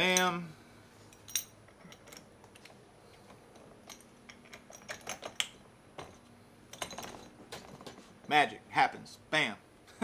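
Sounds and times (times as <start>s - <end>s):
light clicks and taps of metal parts: 1.1s - 8.4s.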